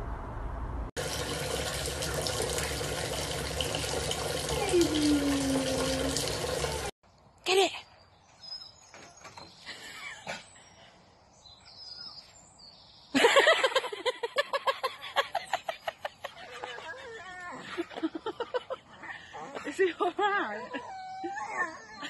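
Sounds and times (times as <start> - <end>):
faint birdsong: 7.0 - 13.9.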